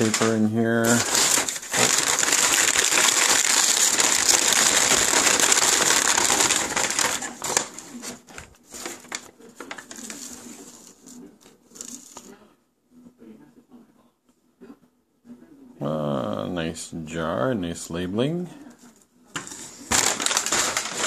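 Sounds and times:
packing paper crinkling: 0.0s - 12.3s, 19.4s - 21.0s.

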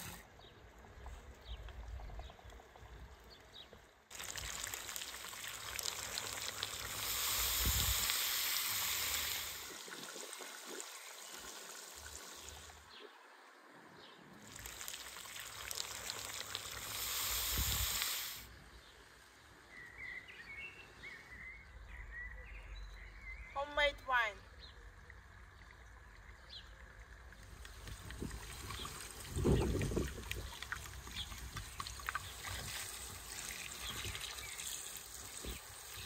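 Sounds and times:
meat and tomatoes sizzling in pot: 0.0s - 0.2s, 4.1s - 12.8s, 14.4s - 18.5s, 27.5s - 36.0s
faint bird chirps: 19.7s - 25.2s.

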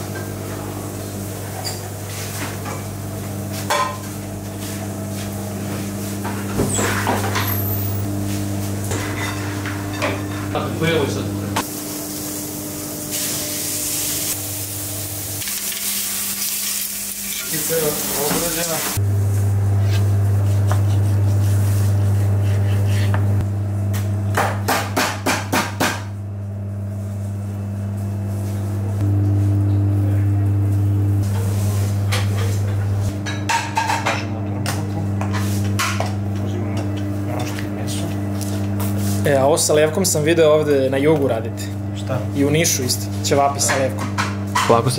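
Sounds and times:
meat sizzling on a grill: 11.7s - 19.0s.

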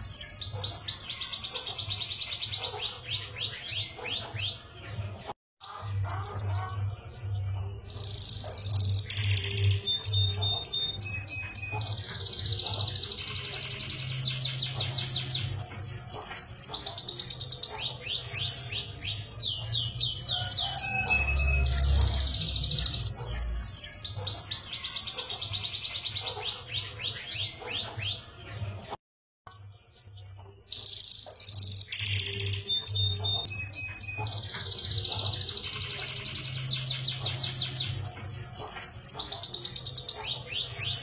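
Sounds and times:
canary singing trills: 0.0s - 28.9s, 29.5s - 41.0s.

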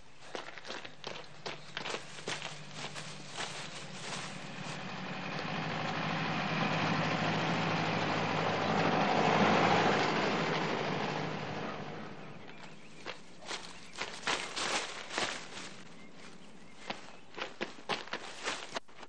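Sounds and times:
running footsteps: 0.0s - 4.9s, 12.4s - 19.0s
car driving past: 4.2s - 12.5s.

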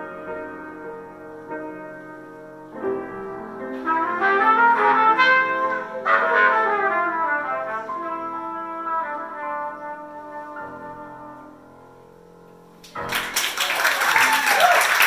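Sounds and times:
grand piano accompaniment: 0.0s - 15.0s
horn melodic solo: 3.8s - 11.7s.

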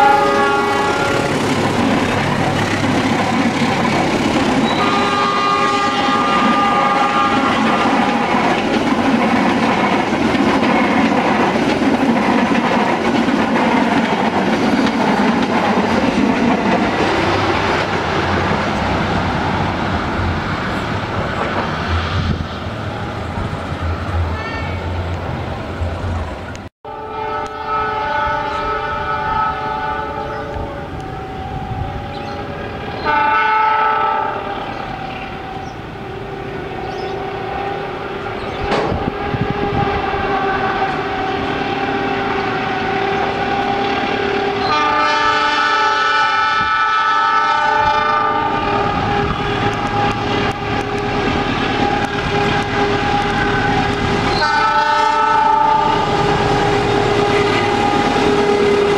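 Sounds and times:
locomotive air horn: 0.0s - 3.0s, 4.0s - 8.8s, 24.3s - 25.1s, 26.8s - 58.9s
train running noise: 0.0s - 58.9s.

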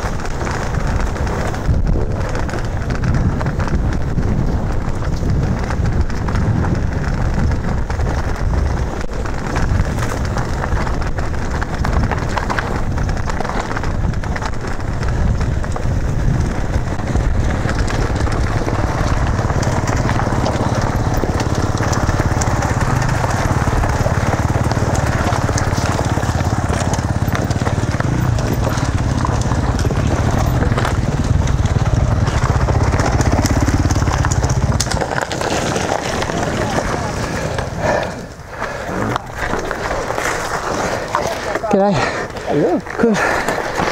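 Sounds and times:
dirt bike engines droning: 0.0s - 43.9s
tyres crunching over gravel: 0.0s - 43.9s
wind rumble on microphone: 0.0s - 43.9s.

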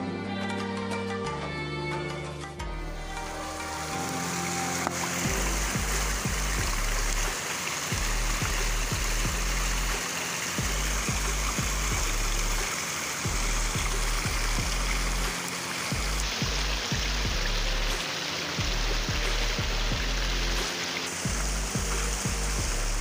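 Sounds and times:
electronic music with bass: 0.0s - 10.0s, 10.6s - 23.0s
steady rushing hiss: 2.9s - 23.0s
kick drum: 8.0s - 9.5s, 10.6s - 12.2s, 13.3s - 14.9s.

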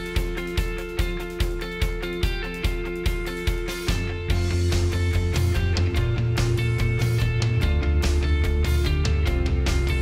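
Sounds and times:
rock music with guitar: 0.0s - 10.0s
low bass line: 4.0s - 10.0s.

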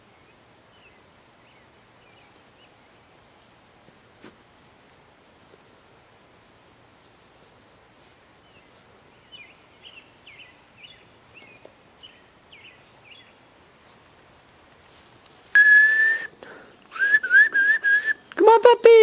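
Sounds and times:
loud steady whistle: 15.6s - 16.3s, 16.9s - 18.2s.

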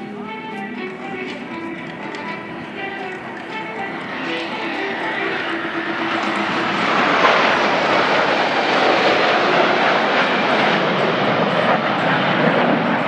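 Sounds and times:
jet engines roaring: 0.0s - 13.0s.

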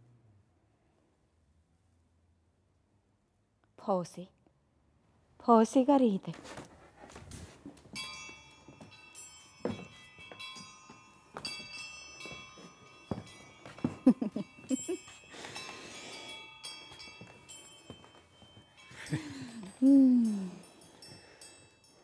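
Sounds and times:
metallic bell-like tones: 7.8s - 22.0s.

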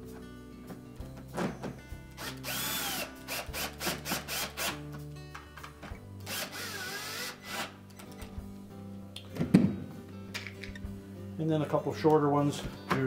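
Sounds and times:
cordless drill driving screws: 2.2s - 4.8s, 6.2s - 7.8s.

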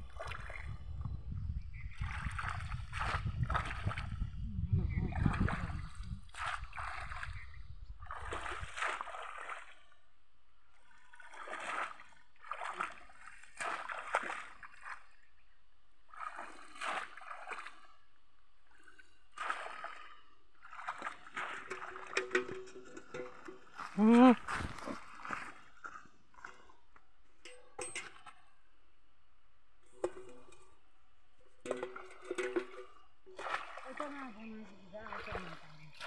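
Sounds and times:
water splashing from wading: 0.0s - 0.8s, 1.7s - 4.3s, 4.9s - 10.1s, 10.7s - 15.4s, 16.0s - 26.8s, 31.6s - 36.0s.

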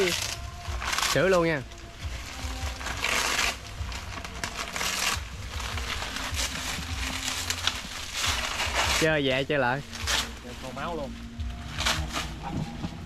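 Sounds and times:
leaves rustling and crinkling: 0.0s - 13.0s
low rumble: 0.0s - 13.0s.

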